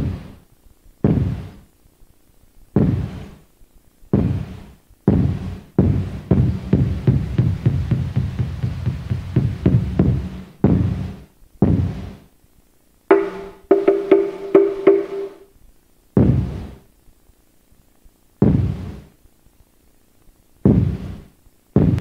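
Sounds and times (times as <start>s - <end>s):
large drum heavy strikes: 5.1s - 12.0s, 13.1s - 15.4s
pitched wooden knocks: 13.1s - 15.4s.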